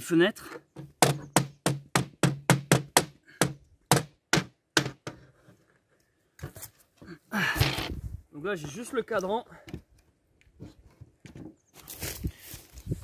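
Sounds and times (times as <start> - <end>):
hammer striking wooden window: 0.8 - 5.2.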